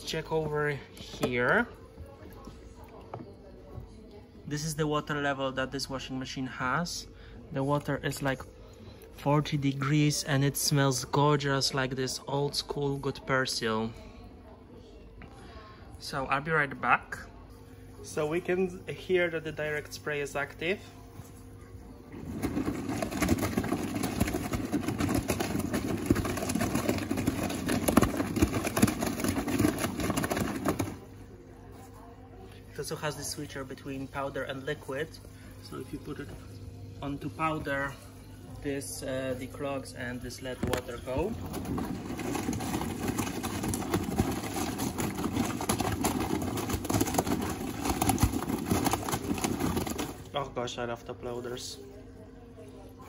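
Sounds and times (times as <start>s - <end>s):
washing machine drum sloshing: 22.1s - 31.1s, 40.0s - 50.3s.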